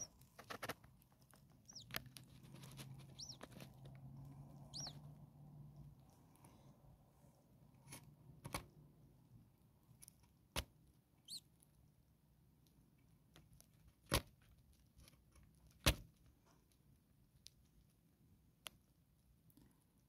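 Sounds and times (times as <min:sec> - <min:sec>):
bird chick begging peep: 0:00.0 - 0:00.7, 0:01.6 - 0:02.0, 0:02.6 - 0:03.8, 0:04.5 - 0:05.2, 0:11.2 - 0:11.4.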